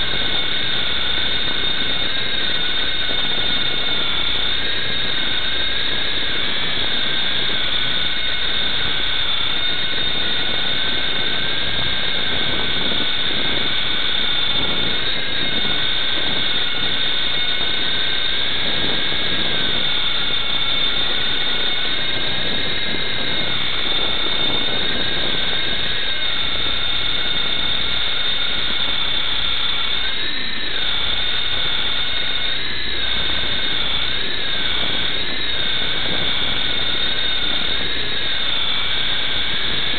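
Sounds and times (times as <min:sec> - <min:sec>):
rc helicopter motor whining: 0:00.0 - 0:39.9.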